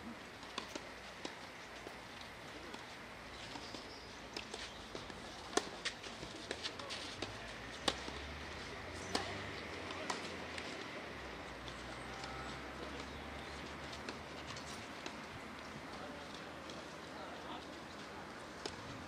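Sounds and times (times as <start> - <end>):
tennis ball hits: 9.1 - 10.3.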